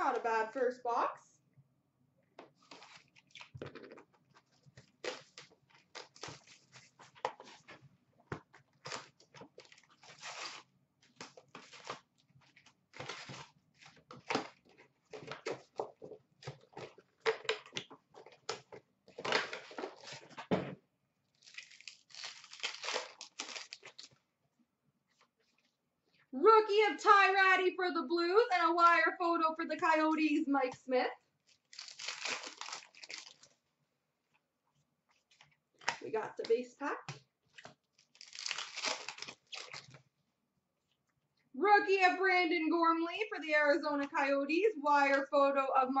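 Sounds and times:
wrapper crinkling and tearing: 2.6s - 7.6s, 8.8s - 15.7s, 21.3s - 24.2s, 31.5s - 33.6s, 37.6s - 40.0s.

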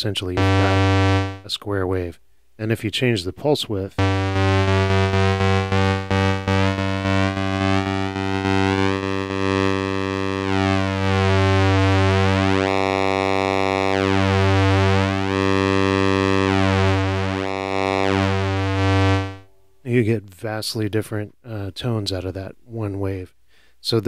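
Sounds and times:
synthesizer low pulse-wave note: 0.4s - 1.5s, 4.0s - 19.5s.

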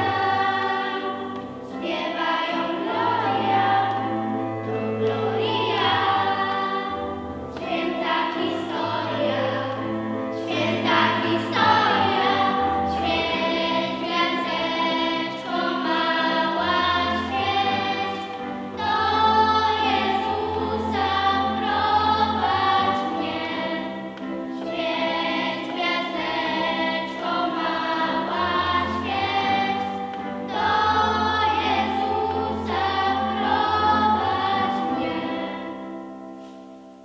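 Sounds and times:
girls choir singing a carol: 0.0s - 37.0s.

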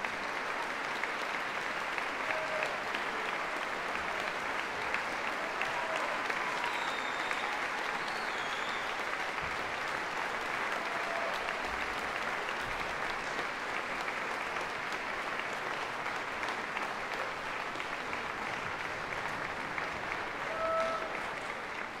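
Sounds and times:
audience applauding: 0.0s - 22.0s
audience cheering: 2.0s - 12.2s, 19.8s - 22.0s.

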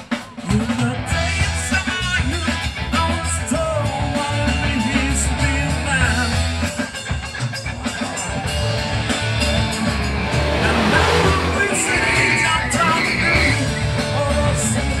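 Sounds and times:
rock music: 0.0s - 15.0s.

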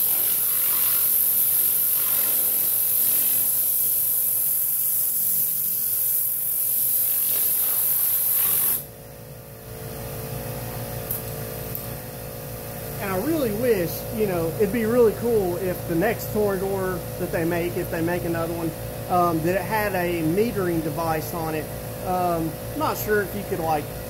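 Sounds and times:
air cleaning gun hissing: 0.0s - 8.9s
machine hum: 8.8s - 24.0s.

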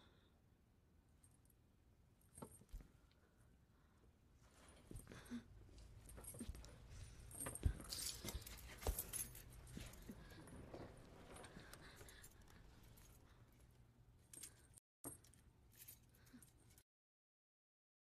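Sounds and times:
metallic jangling and clinking: 5.8s - 16.8s.

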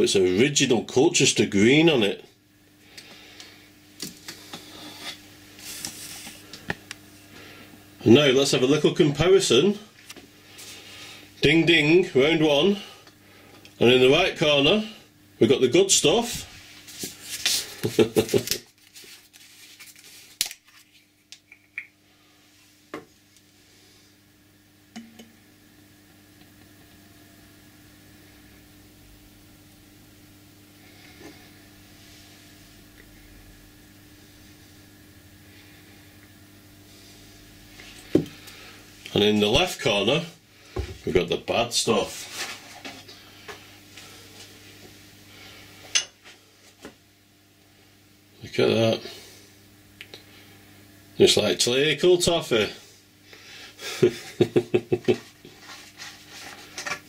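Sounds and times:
faint steady hum: 0.0s - 57.0s
rustle on a workbench: 4.2s - 6.4s, 16.3s - 21.1s, 42.1s - 44.5s, 55.1s - 57.0s.

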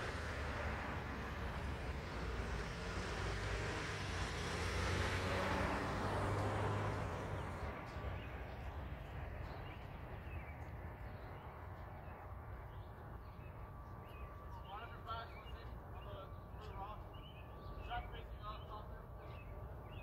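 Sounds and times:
car driving past: 0.0s - 8.9s
faint street ambience: 0.0s - 20.0s.

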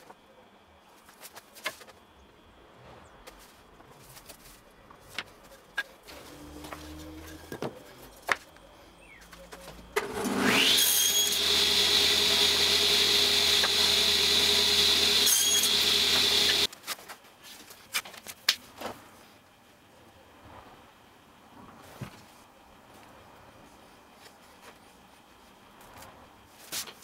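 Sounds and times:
table saw cutting wood: 10.0s - 16.7s.

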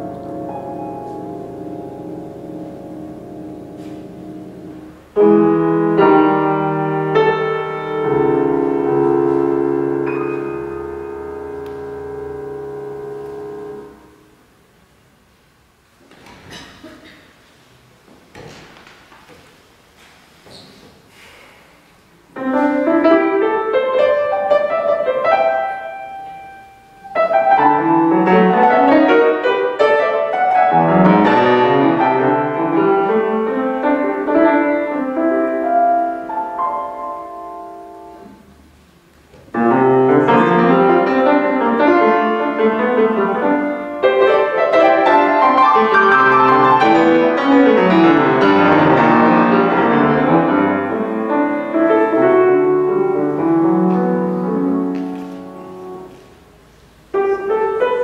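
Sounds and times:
solo piano playing: 0.0s - 14.4s, 22.3s - 38.7s, 39.5s - 58.0s.

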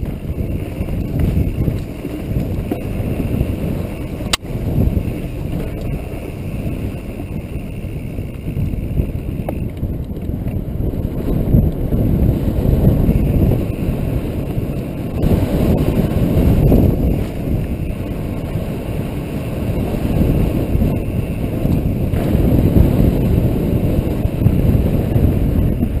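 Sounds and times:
bike tyres rolling on gravel: 0.0s - 26.0s
wind buffeting microphone: 0.0s - 26.0s.

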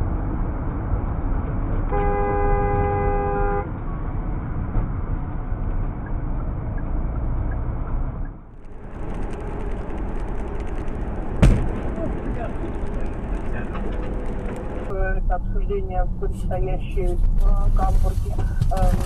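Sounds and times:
car road noise: 0.0s - 19.0s
car horn blaring: 1.9s - 3.7s.

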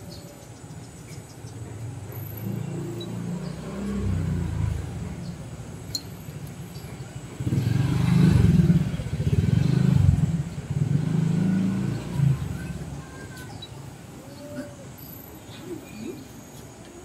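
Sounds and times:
vehicle engine rumbling: 0.0s - 17.0s.

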